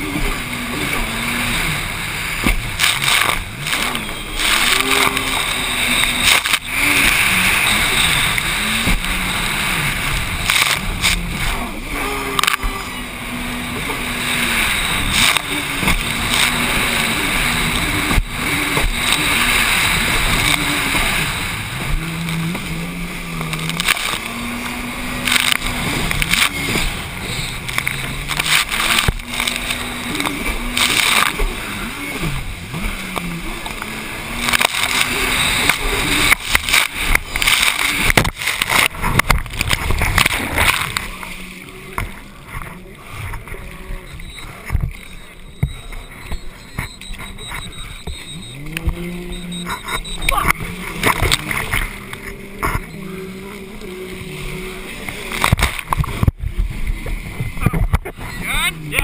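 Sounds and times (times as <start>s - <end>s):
rush of wind and spray: 0.0s - 43.5s
hull slamming on water: 0.0s - 43.6s, 54.1s - 58.4s
jet ski engine revving: 0.0s - 59.0s.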